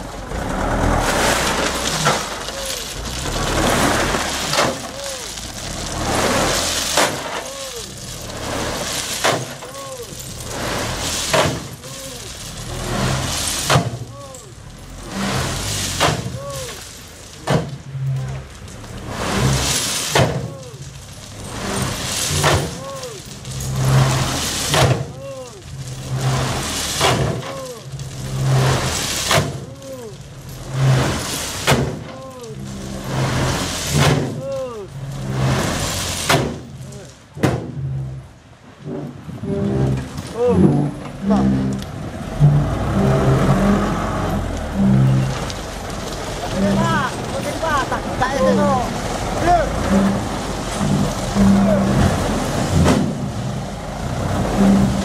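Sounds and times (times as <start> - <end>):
crushed stone pouring and rattling: 0.0 - 37.2, 42.2 - 55.0
diesel engine running low: 0.0 - 55.0
gravel clattering: 0.0 - 55.0
sharp knocks: 37.4 - 37.8
short rising and falling squeak: 38.9 - 41.8, 42.4 - 45.6.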